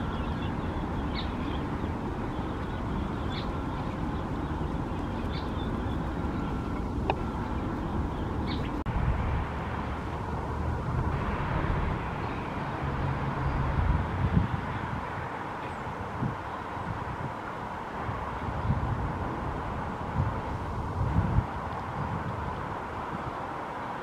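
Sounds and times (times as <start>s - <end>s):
ducklings peeping: 0.0s - 8.8s
low outdoor rumble: 0.0s - 24.0s.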